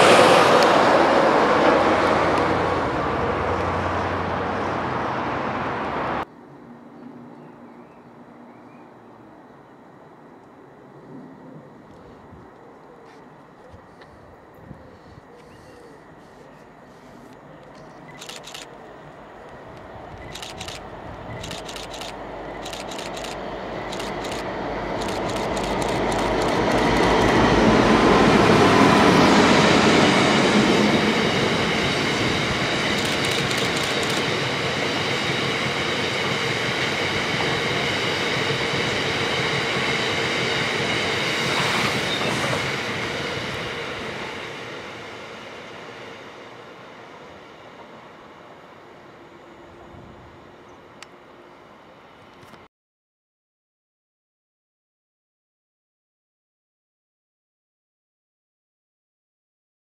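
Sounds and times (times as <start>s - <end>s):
diesel locomotive passing: 0.0s - 12.3s, 15.8s - 52.4s
sharp ticks: 20.2s - 27.4s, 32.9s - 34.4s.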